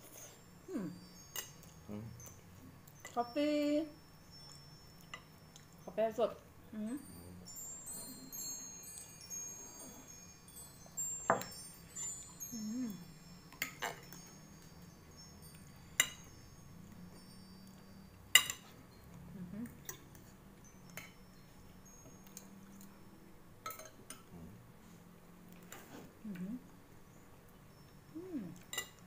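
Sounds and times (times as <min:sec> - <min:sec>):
wind chimes tinkling: 0:00.0 - 0:24.0
cutlery clinking on plate: 0:11.3 - 0:12.3, 0:13.5 - 0:14.8, 0:15.6 - 0:16.3, 0:18.3 - 0:18.8, 0:23.6 - 0:24.3, 0:28.6 - 0:29.0.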